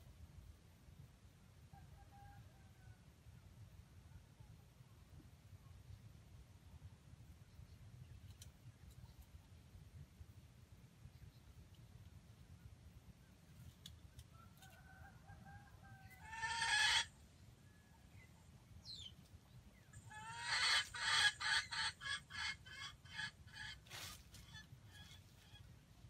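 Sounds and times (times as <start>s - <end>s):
junglefowl clucking: 14.1s - 18.2s, 19.9s - 25.7s
junglefowl calling: 14.5s - 17.9s, 19.9s - 25.7s.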